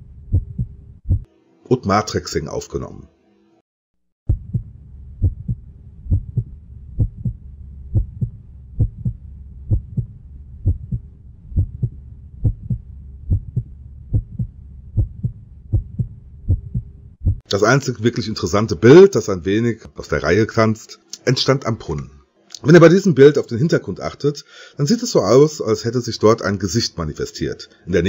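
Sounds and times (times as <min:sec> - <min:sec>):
heartbeat double thump: 0:00.3 - 0:01.3, 0:04.3 - 0:17.5
faint steady hum: 0:04.3 - 0:28.0.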